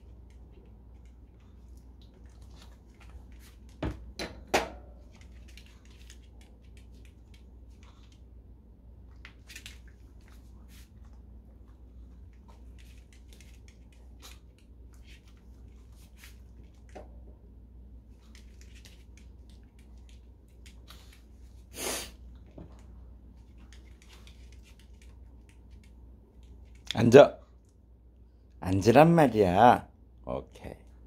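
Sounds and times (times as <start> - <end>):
short puff of noise: 21.7 - 22.2
dog claws clicking on floor: 23.4 - 27.0.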